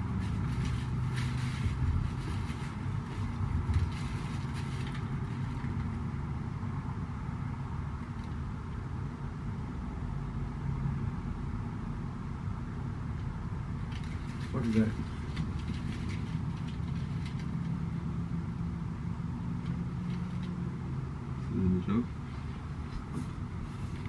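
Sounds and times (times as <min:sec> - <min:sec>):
rustling and handling noises: 0:00.0 - 0:06.2, 0:13.8 - 0:18.2, 0:22.1 - 0:24.0.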